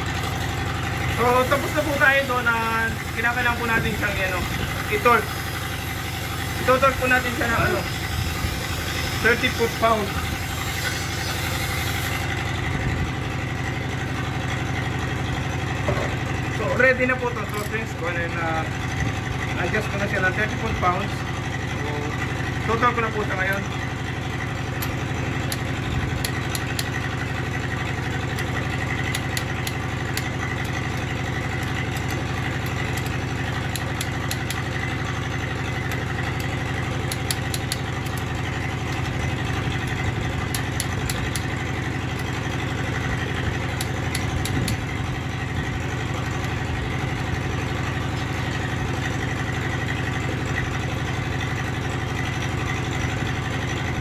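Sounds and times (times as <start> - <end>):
engine idling: 0.0 - 54.0
ratchet wrench clicking: 3.1 - 12.3, 24.7 - 27.2, 28.2 - 45.0.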